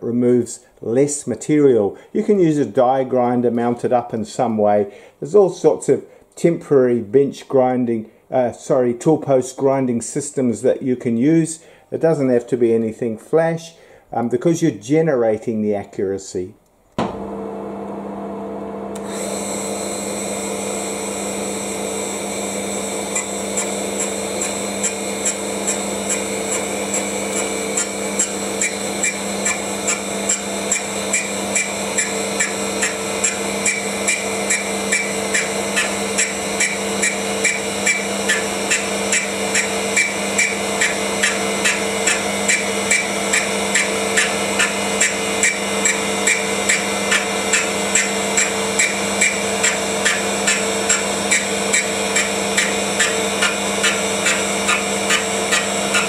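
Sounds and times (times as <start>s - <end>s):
grinder motor humming: 17.0s - 56.0s
regular ticking of grinding wheel: 23.1s - 56.0s.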